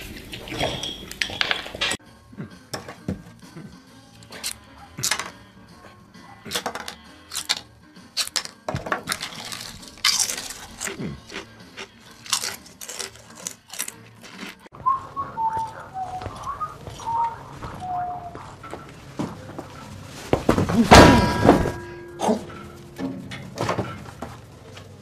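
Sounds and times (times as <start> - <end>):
chips being chewed: 7.2 - 17.1
person whistling: 14.7 - 18.6.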